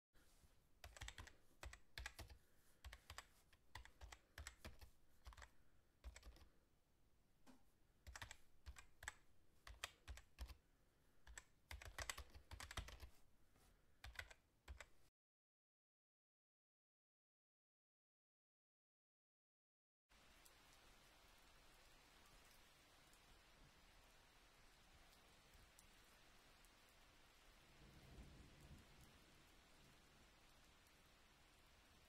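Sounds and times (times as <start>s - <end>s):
keyboard typing: 0.8s - 6.5s, 8.0s - 10.6s, 11.2s - 13.2s, 14.0s - 14.9s.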